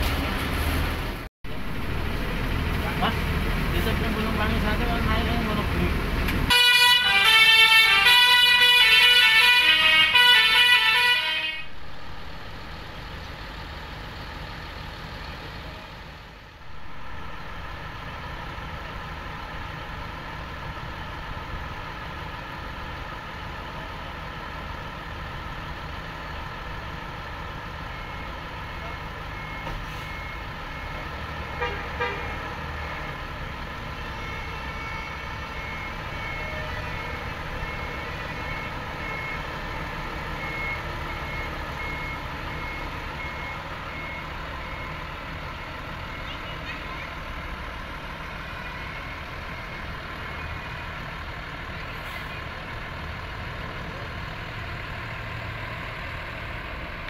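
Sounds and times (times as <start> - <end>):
bus diesel engine rumbling: 0.0 - 57.0
bus horn: 6.5 - 11.8, 31.5 - 32.4, 33.9 - 35.8, 36.4 - 37.2.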